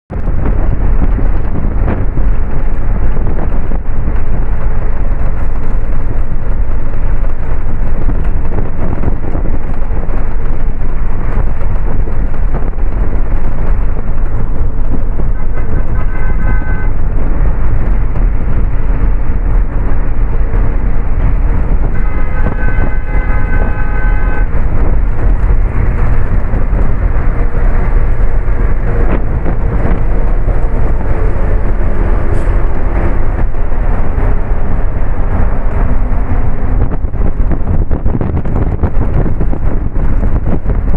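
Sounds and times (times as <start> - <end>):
bus engine and road rumble: 0.0 - 40.9
vehicle horn: 15.3 - 17.2, 21.8 - 25.0.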